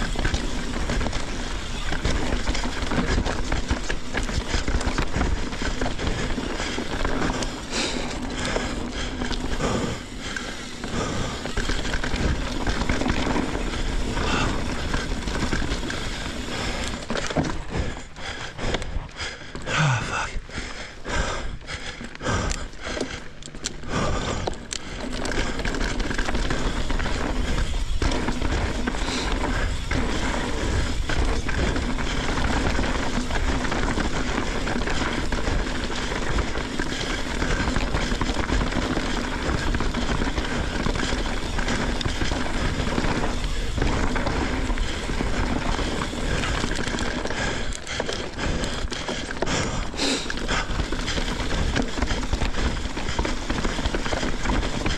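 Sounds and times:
bike rattling: 0:00.0 - 0:54.9
bike tyres rolling on dirt: 0:00.0 - 0:54.9.

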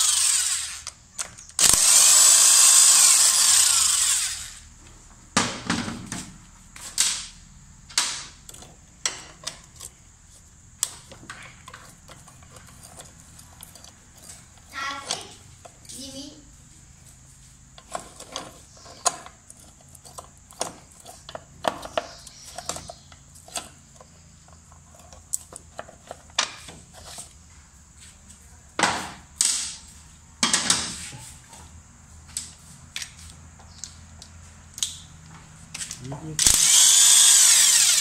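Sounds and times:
wrench ratcheting and scraping: 0:00.0 - 0:04.7, 0:08.4 - 0:16.0, 0:17.7 - 0:27.4, 0:35.8 - 0:38.0.

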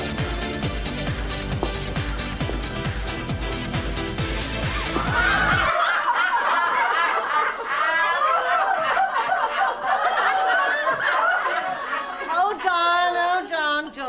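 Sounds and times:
dance music with heavy beat: 0:00.0 - 0:05.7
women laughing: 0:04.6 - 0:13.2.

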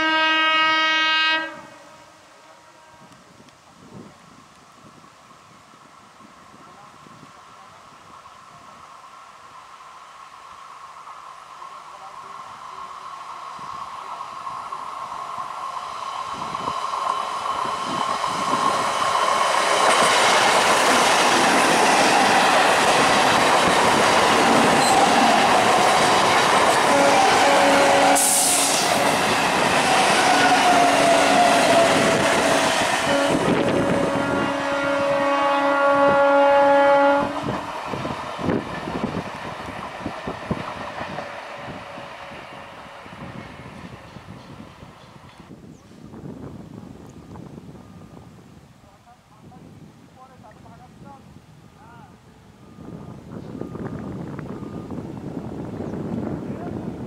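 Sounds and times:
train horn: 0:00.0 - 0:03.4, 0:26.8 - 0:37.7
train wheels roaring on rails: 0:00.0 - 0:48.6, 0:51.4 - 0:57.0.

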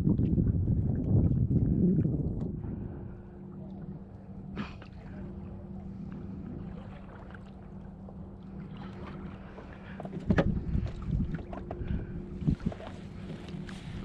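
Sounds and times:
wind buffeting microphone: 0:00.0 - 0:04.1, 0:10.0 - 0:14.0
steady low hum: 0:00.0 - 0:14.0.

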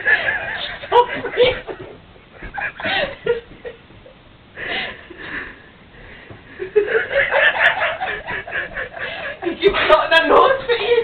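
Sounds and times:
women laughing breathlessly: 0:00.0 - 0:05.6, 0:06.4 - 0:09.6.

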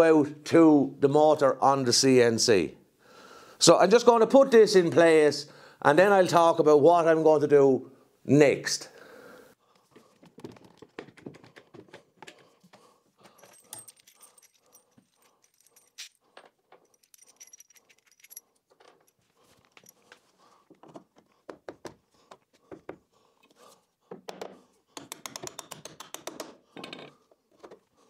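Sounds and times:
small knocks and clicks: 0:10.0 - 0:14.0
metal bolts clinking: 0:13.2 - 0:20.0.

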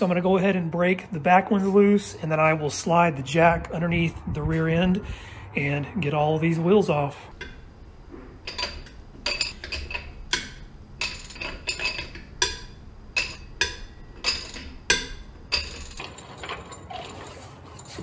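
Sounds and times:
lug wrench clinking on lug nuts: 0:07.3 - 0:07.8, 0:08.4 - 0:18.0.

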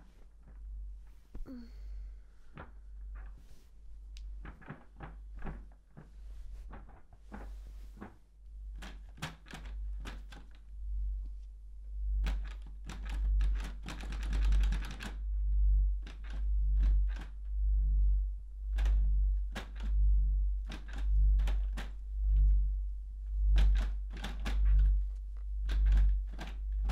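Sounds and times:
sharp clicks and knocks: 0:04.1 - 0:10.7, 0:12.2 - 0:17.6, 0:18.6 - 0:26.9
deep pulse: 0:10.7 - 0:26.9
rattling run of clicks: 0:12.2 - 0:15.3, 0:20.6 - 0:22.6, 0:23.5 - 0:26.9.

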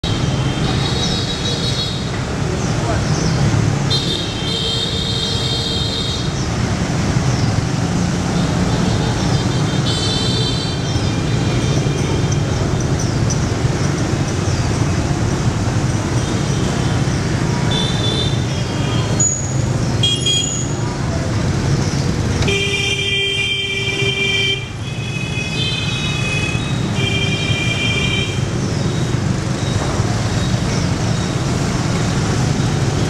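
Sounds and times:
motorbike and scooter traffic: 0:00.0 - 0:33.0
high-pitched scooter horns beeping: 0:17.7 - 0:20.8, 0:22.4 - 0:28.6.

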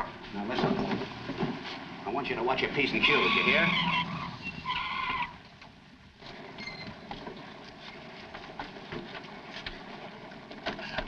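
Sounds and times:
car tyres squealing: 0:02.8 - 0:05.4.

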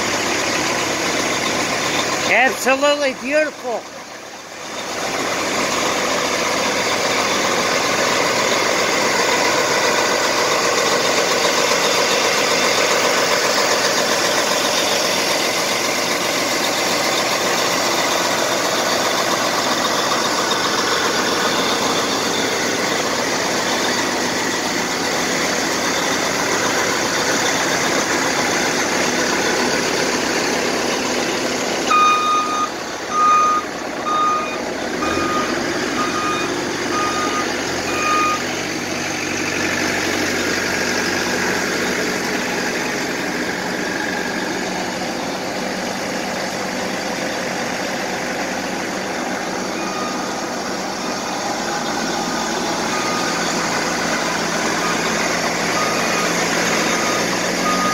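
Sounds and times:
tractor diesel engine idling: 0:00.0 - 0:57.9
reversing beeper: 0:31.9 - 0:38.6, 0:49.6 - 0:57.9.

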